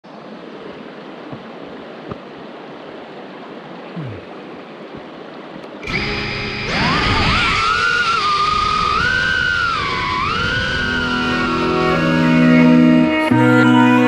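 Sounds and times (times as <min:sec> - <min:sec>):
running water: 0:00.0 - 0:14.0
electronic music chord: 0:10.8 - 0:14.0.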